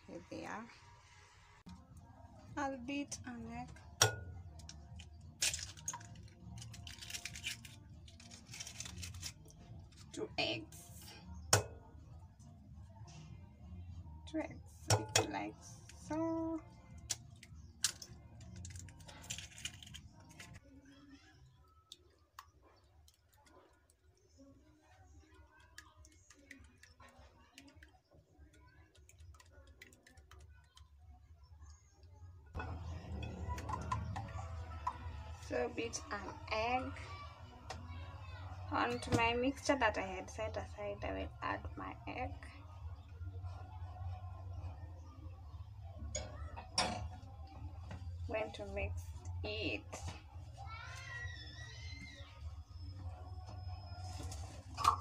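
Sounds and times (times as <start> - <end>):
eggs cracking: 4.0 - 10.1, 16.9 - 20.6, 25.2 - 30.9.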